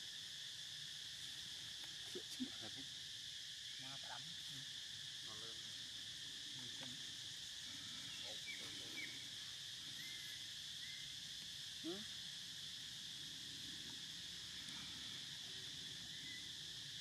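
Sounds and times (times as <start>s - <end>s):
insects droning: 0.0s - 17.0s
faint animal calls and chirps: 6.4s - 17.0s.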